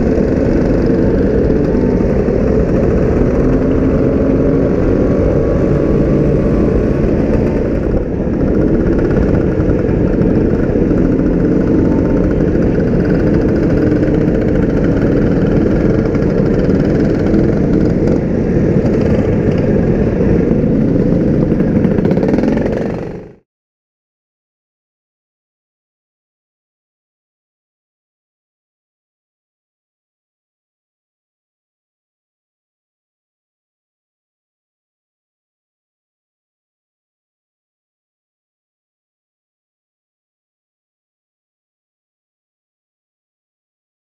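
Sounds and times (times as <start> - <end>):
scooter engines running: 0.0 - 23.4.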